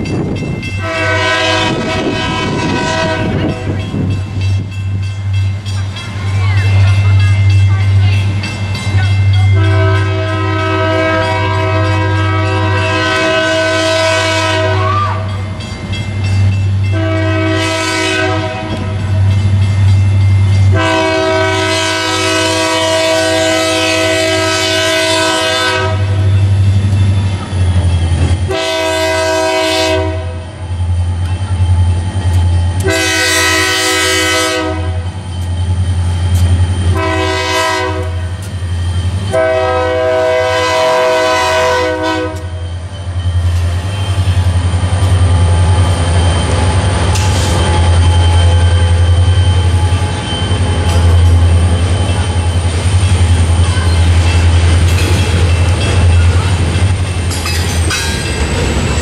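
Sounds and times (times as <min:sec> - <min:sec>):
locomotive air horn blasts: 0:00.8 - 0:03.8, 0:09.6 - 0:15.3, 0:16.9 - 0:19.0, 0:20.7 - 0:26.4, 0:28.5 - 0:30.5, 0:32.8 - 0:35.1, 0:36.9 - 0:38.4, 0:39.3 - 0:42.6.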